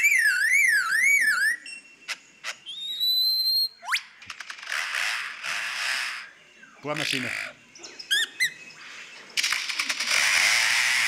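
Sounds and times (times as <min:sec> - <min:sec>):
bird mimicking car alarm: 0:00.0 - 0:04.2, 0:07.0 - 0:08.9
held whistle: 0:00.0 - 0:04.2.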